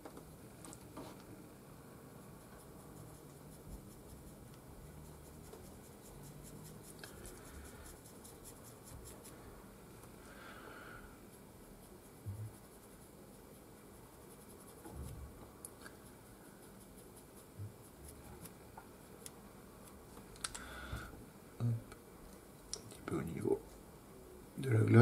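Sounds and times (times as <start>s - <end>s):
paintbrush dabbing and scratching: 2.2s - 9.6s, 11.2s - 20.3s.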